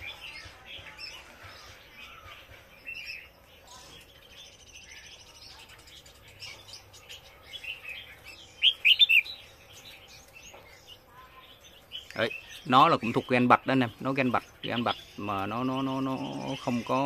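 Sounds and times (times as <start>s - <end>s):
sharp bird calls: 0.0s - 17.0s
songbirds chirping: 0.0s - 17.0s.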